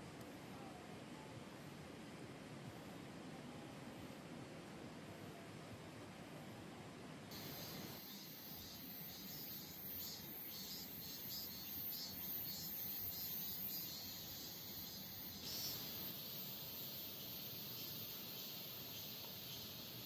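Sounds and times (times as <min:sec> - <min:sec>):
crickets chirping: 0:07.3 - 0:20.0.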